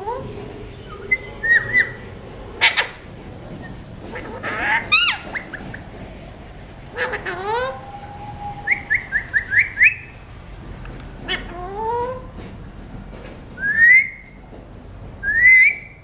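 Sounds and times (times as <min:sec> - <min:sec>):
parakeets calling and whistling: 0:00.1 - 0:05.9, 0:06.9 - 0:10.2.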